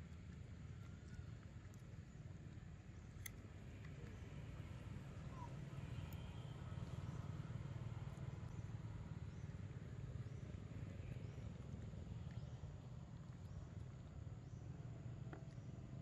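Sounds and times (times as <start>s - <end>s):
faint low outdoor rumble: 0.0s - 16.0s
monkey eating clicks: 0.1s - 4.7s.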